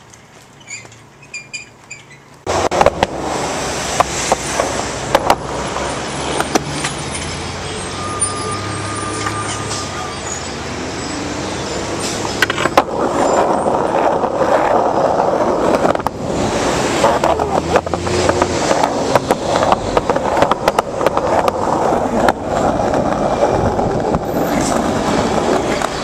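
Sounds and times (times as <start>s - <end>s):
fire engines driving past: 2.4s - 26.0s.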